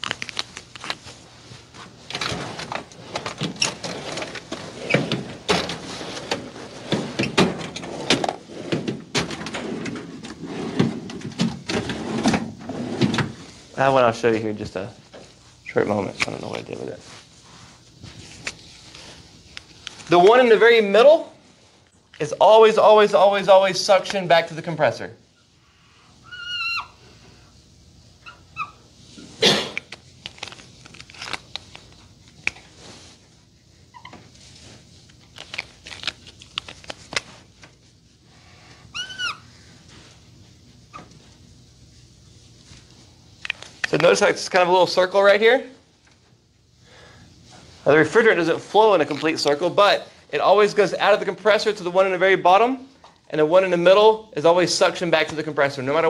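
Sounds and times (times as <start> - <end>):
marker squeaking on whiteboard: 39.0 - 39.5.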